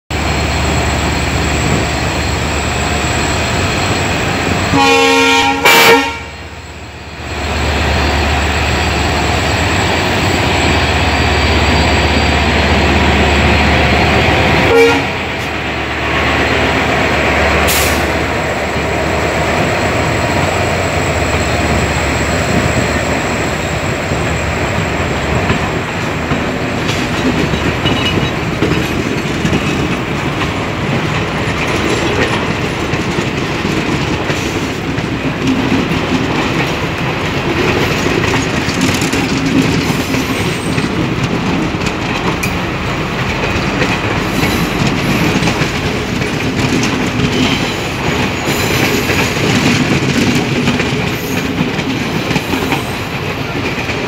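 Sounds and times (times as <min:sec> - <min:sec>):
locomotive engine hum: 0:00.1 - 0:54.0
train wheels on rails: 0:00.1 - 0:54.0
train horn blast: 0:04.7 - 0:06.4, 0:14.6 - 0:15.3.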